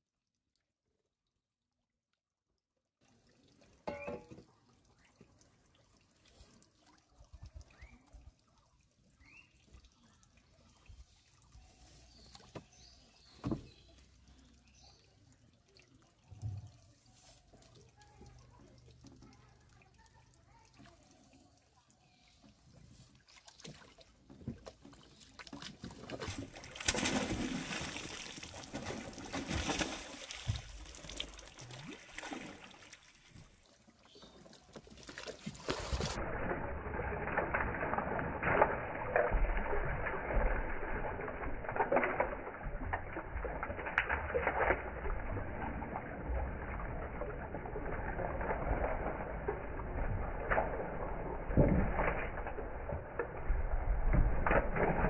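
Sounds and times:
water trickling and splashing: 3.0s - 55.0s
net lifted from water splashing: 23.0s - 33.8s, 34.5s - 55.0s.

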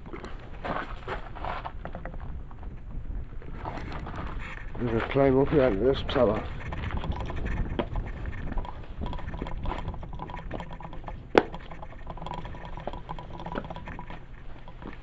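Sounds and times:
footsteps on stone rubble: 0.0s - 2.8s, 3.4s - 10.1s, 14.1s - 15.0s
wind rumbling on microphone: 0.0s - 15.0s.

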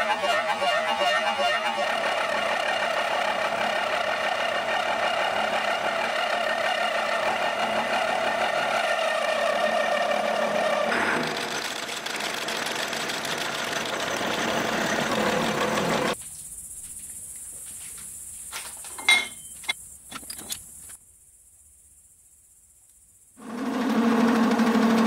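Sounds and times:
milling machine cutting steel: 0.0s - 16.2s.

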